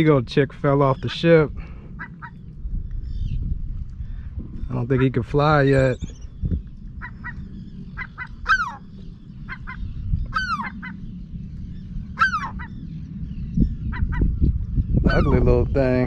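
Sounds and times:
low rumble: 0.0 - 16.0
gull chick calling: 0.9 - 2.5, 4.6 - 6.2, 6.9 - 11.1, 12.0 - 12.9, 13.6 - 15.5.

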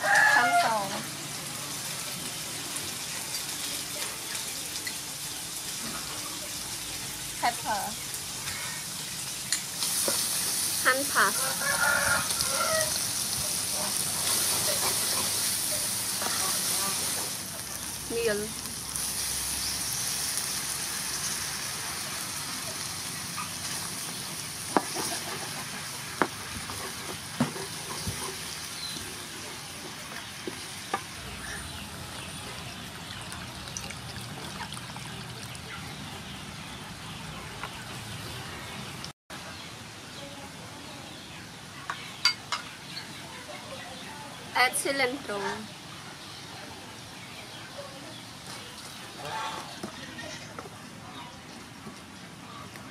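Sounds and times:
rooster crowing: 0.0 - 1.0, 11.2 - 13.2
shrimp sizzling in oil: 0.0 - 39.7.

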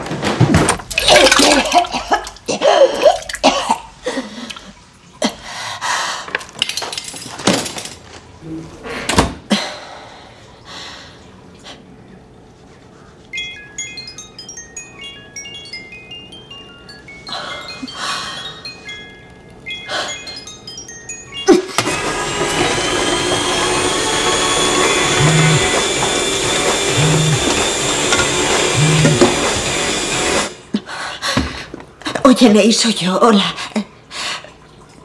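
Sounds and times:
soft chiming music: 13.3 - 21.8.

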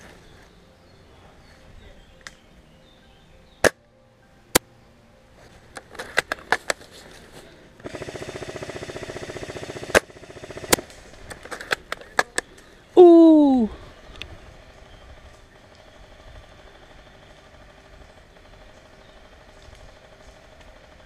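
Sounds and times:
airsoft full-auto burst: 7.8 - 11.4.

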